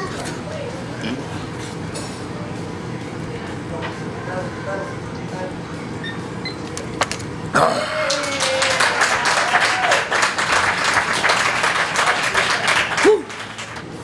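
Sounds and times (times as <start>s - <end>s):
people cheering: 7.6s - 13.8s
people clapping: 7.9s - 14.0s.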